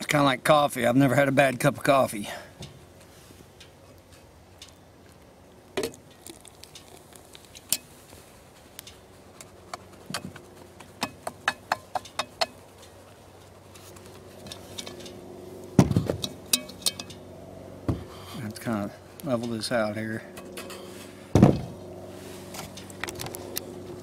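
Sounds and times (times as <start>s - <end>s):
utensil clinking and scraping pot: 9.8s - 15.2s, 16.2s - 17.2s, 20.3s - 21.1s.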